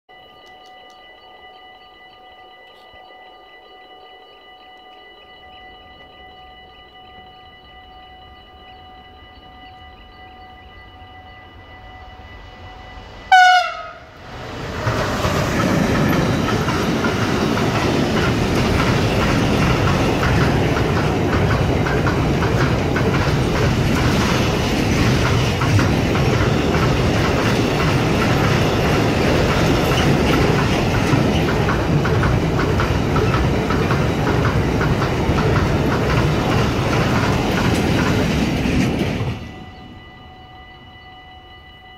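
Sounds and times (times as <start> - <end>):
train wagons rumbling past: 5.5 - 41.9
locomotive horn blast: 13.3 - 14.3
wheels clacking over rail joints: 14.2 - 39.7.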